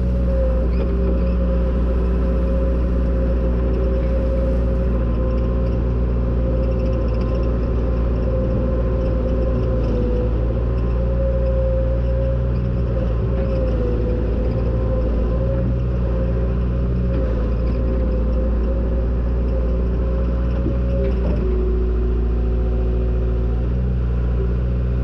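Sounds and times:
steady machine whine: 0:00.0 - 0:11.0
diesel engine running: 0:00.0 - 0:25.0.

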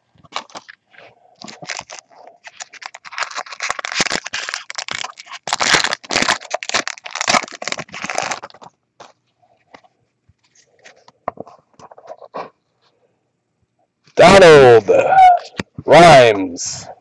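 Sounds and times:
foil wrapper crinkling: 0:00.2 - 0:09.8.

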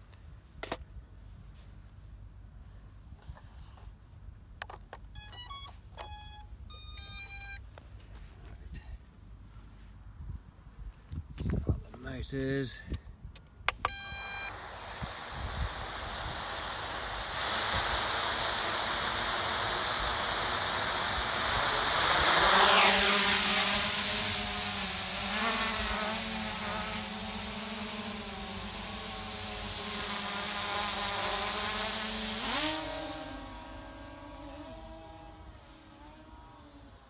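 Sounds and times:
quadcopter motors whirring: 0:05.2 - 0:07.6, 0:13.7 - 0:37.0.

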